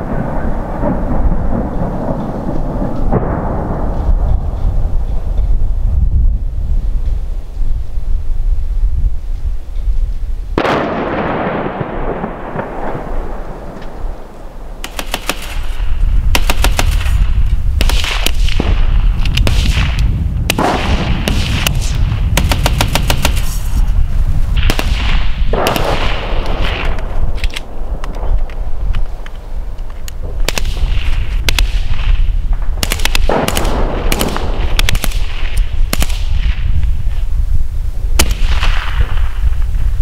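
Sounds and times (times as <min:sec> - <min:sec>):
wind rumbling on microphone: 0:00.0 - 0:40.0
loud gunshot with echo: 0:10.6 - 0:14.1, 0:14.8 - 0:23.7, 0:24.6 - 0:27.0, 0:32.8 - 0:36.6.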